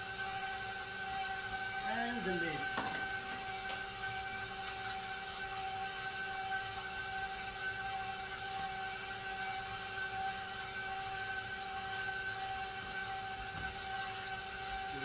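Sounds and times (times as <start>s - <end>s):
high whine: 0.0s - 8.8s
machine hum: 0.0s - 15.0s.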